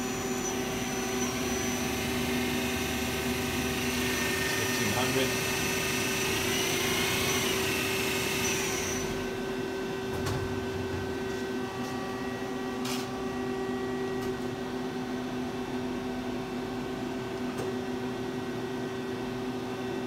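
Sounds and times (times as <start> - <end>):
lathe spindle whine: 0.0 - 9.6
machine hum: 0.0 - 15.8.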